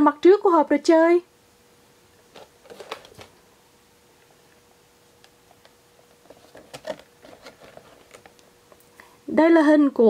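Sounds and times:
faint steady hum: 0.0s - 10.0s
plastic crinkles: 2.3s - 3.3s, 5.5s - 8.8s.

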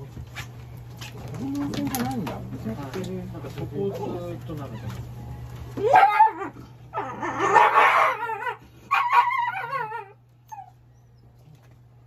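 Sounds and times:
dog yelping and howling: 5.8s - 11.2s.

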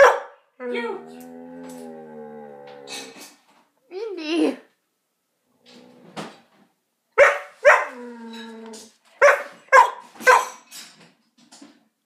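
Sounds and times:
dog yelping and moaning: 7.8s - 8.9s.

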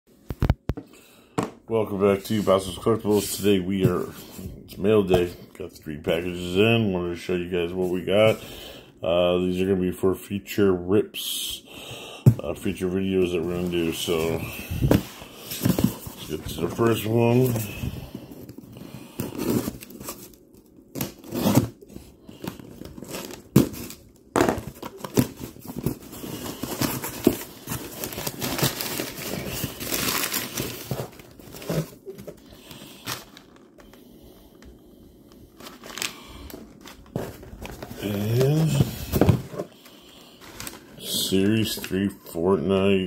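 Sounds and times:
packing paper rustling: 13.1s - 34.0s, 35.5s - 41.9s.

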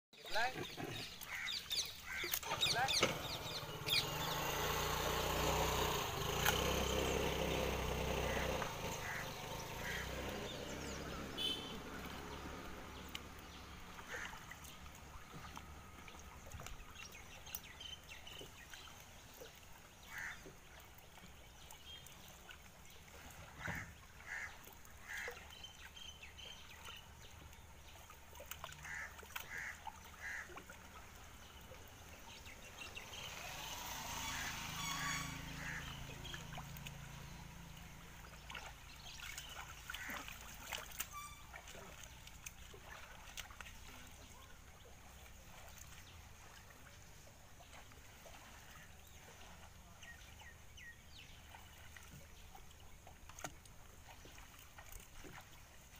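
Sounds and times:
birds honking: 0.6s - 4.7s, 6.9s - 12.4s, 13.9s - 14.8s, 20.1s - 20.5s, 23.5s - 25.5s, 28.8s - 30.6s, 33.0s - 37.5s, 39.3s - 42.1s.

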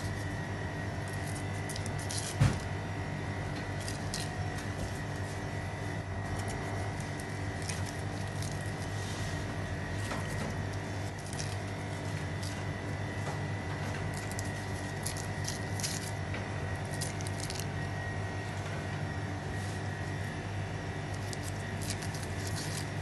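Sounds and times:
low machine hum with high whine: 0.0s - 23.0s.

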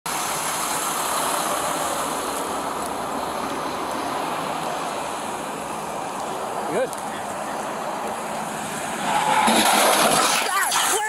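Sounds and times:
fire truck engine idling: 0.1s - 8.7s.

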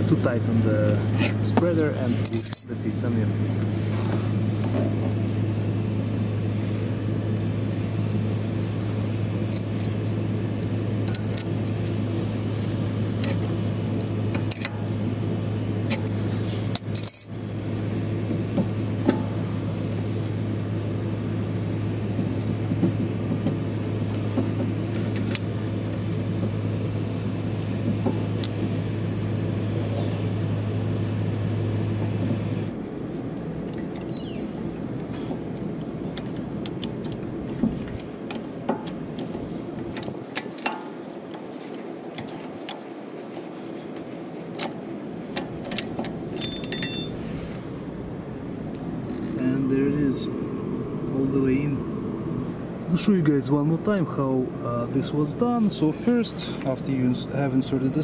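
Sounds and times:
steady low hum: 0.0s - 58.0s
metallic tool clinks and clicks: 1.8s - 2.8s, 45.4s - 47.2s.

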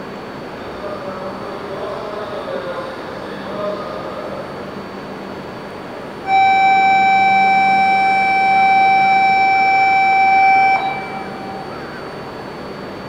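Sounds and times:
steady low hum: 0.0s - 13.0s
electronic departure buzzer tone: 6.2s - 12.4s.

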